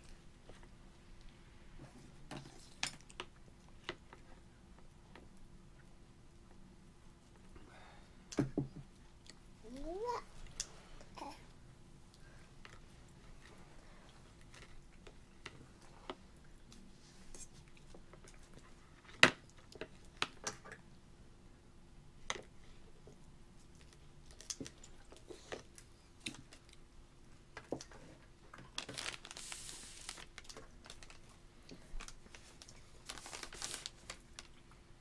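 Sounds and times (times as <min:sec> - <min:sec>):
crinkly rustles: 0:27.7 - 0:34.9.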